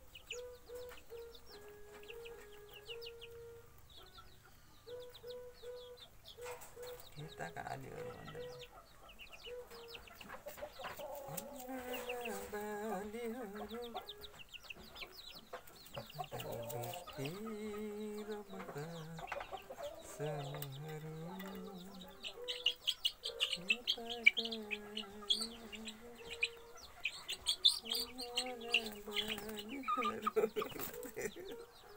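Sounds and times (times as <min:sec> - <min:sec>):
chicks peeping: 0:00.0 - 0:31.9
low wavering calls: 0:16.0 - 0:31.7.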